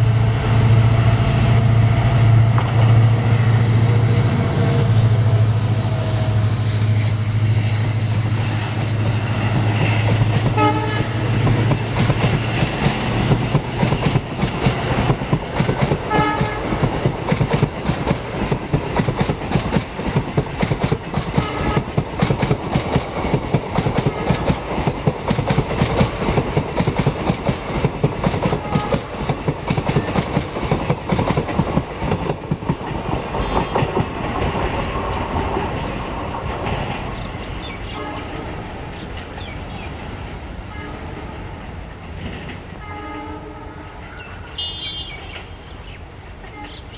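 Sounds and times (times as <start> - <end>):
diesel locomotive engine drone: 0.0 - 46.9
train horn toots: 10.4 - 11.6, 16.0 - 16.9, 21.4 - 22.0, 28.5 - 29.2, 37.9 - 38.5, 40.7 - 41.5, 42.8 - 45.3.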